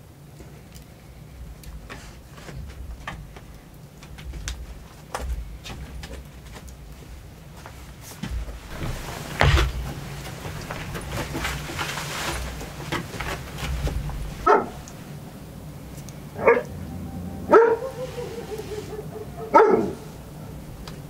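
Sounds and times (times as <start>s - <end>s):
dog barking: 14.4s - 14.8s, 16.4s - 16.8s, 17.4s - 20.6s
dog whining: 16.4s - 20.6s.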